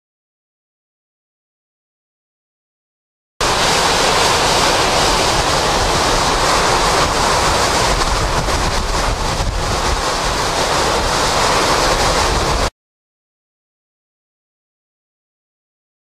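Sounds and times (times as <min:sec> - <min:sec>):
driving rain: 0:03.4 - 0:12.7
hurricane wind: 0:03.4 - 0:12.7.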